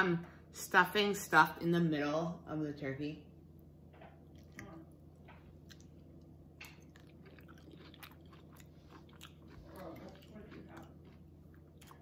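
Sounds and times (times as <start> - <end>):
person chewing food: 4.1 - 12.0.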